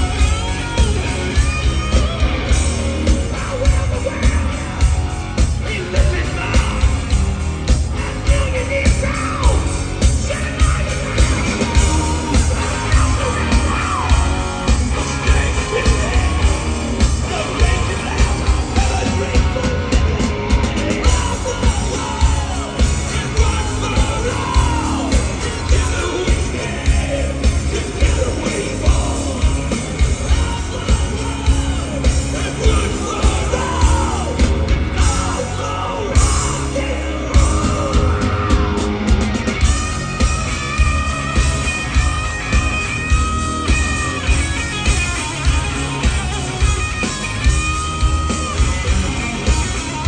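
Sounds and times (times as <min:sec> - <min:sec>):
bass guitar: 0:00.0 - 0:50.0
electric guitars: 0:00.0 - 0:50.0
pounding drum beat: 0:00.0 - 0:50.0
person yelling singing: 0:02.5 - 0:07.2, 0:07.9 - 0:50.0.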